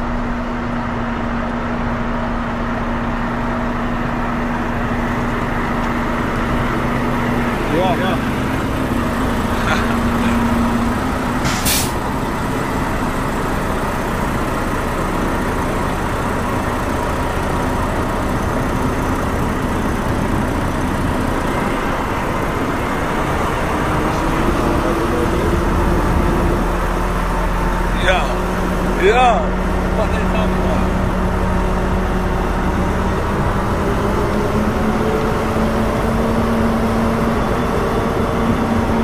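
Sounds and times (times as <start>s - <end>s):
truck diesel engine running: 0.0s - 39.0s
air hiss: 11.4s - 12.0s.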